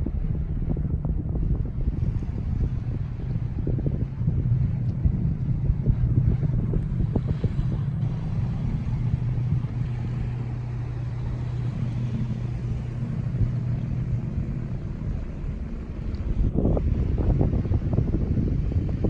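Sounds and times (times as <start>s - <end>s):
engine droning: 0.0s - 19.0s
wind rumbling on microphone: 0.0s - 19.0s.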